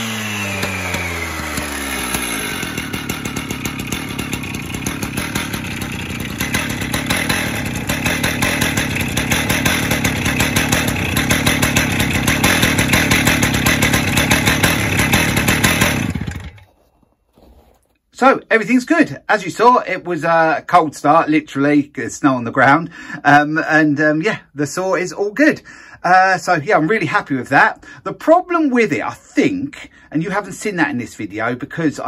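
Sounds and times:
two-stroke saw engine running: 0.0s - 16.7s.

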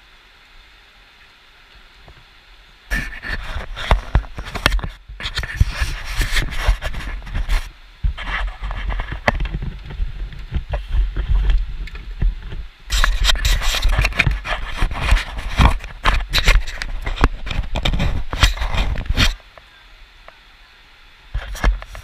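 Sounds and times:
low wind rumble: 2.0s - 19.4s
camera handling rubbing and scraping: 2.9s - 19.4s, 21.4s - 22.0s.

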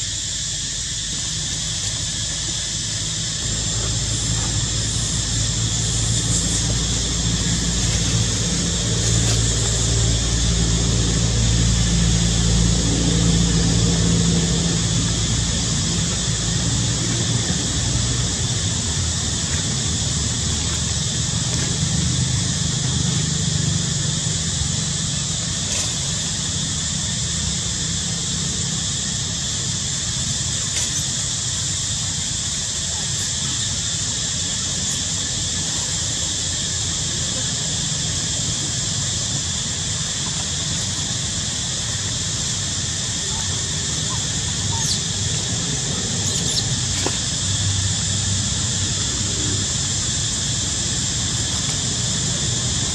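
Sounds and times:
high-pitched hiss: 0.0s - 52.9s
high-pitched insect chorus: 0.0s - 52.9s.

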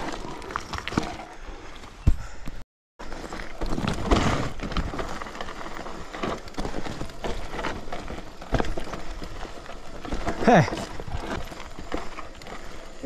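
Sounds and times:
bike rolling over rocky trail: 0.0s - 2.1s, 3.0s - 13.0s
wheels knocking on stones: 3.0s - 13.0s.

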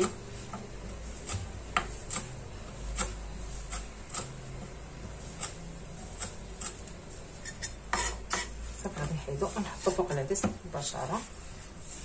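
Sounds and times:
knife chopping on wooden board: 0.0s - 4.4s, 7.9s - 8.6s.

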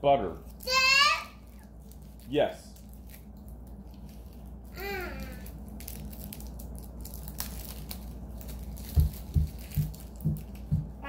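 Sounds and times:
low room hum: 0.0s - 11.0s
wrapper crinkling and tearing: 1.5s - 10.7s
soft low thuds: 8.9s - 11.0s.

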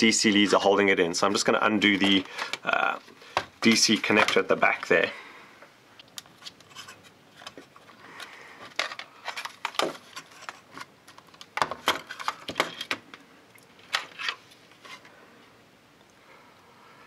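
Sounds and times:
plastic clatter: 6.4s - 13.2s.

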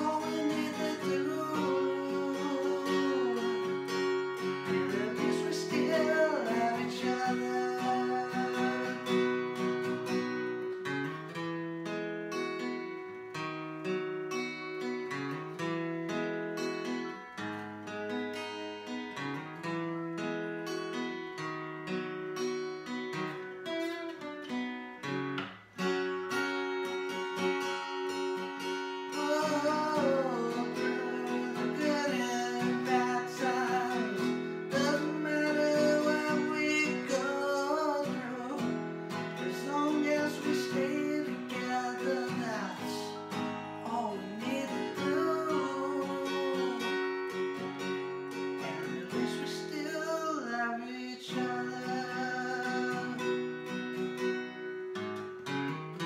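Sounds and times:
man singing: 0.0s - 9.9s, 28.9s - 53.8s
strummed acoustic guitar: 0.0s - 56.0s.

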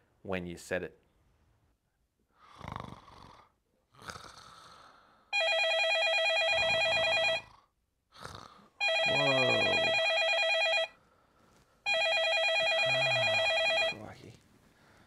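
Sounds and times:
phone ringtone trilling: 5.4s - 7.5s, 8.8s - 11.0s, 11.9s - 14.1s
person groaning: 9.1s - 9.8s.

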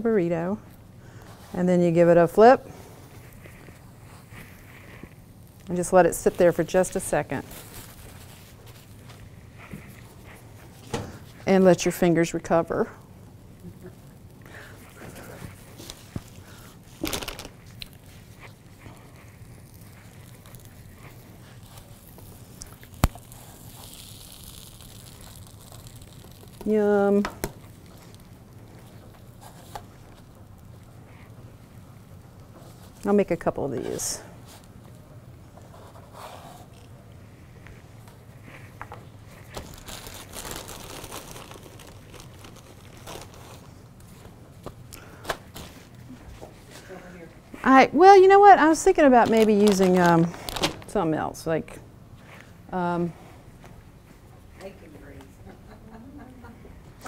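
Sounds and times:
food crackling in a skillet: 3.2s - 10.7s, 13.0s - 33.2s
plastic package crinkling: 13.7s - 30.8s, 39.3s - 43.8s, 48.8s - 51.1s.

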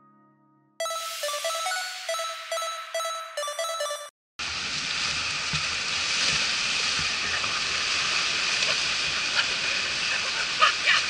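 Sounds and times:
music notes: 0.8s - 4.1s
sea surf breaking on beach: 4.4s - 11.0s.

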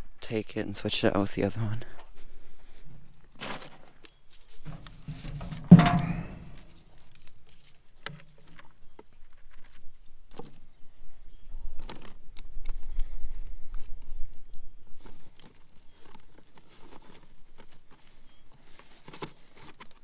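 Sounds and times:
twine rolls knocking and rustling: 4.6s - 7.0s
loud ringing knock: 5.6s - 6.6s.

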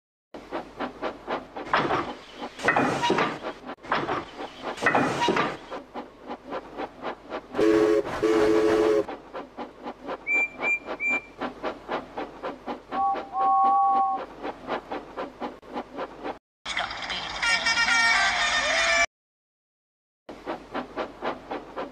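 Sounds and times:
steam locomotive chuffing: 0.4s - 16.4s, 20.3s - 21.9s
long low train whistle: 7.6s - 9.1s, 12.9s - 14.3s
short high whistle peeps: 10.2s - 11.4s.

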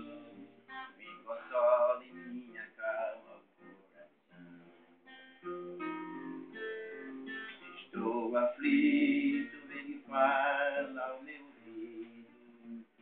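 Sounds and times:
man singing: 0.0s - 4.0s, 6.9s - 13.0s
picked acoustic guitar: 0.0s - 13.0s.

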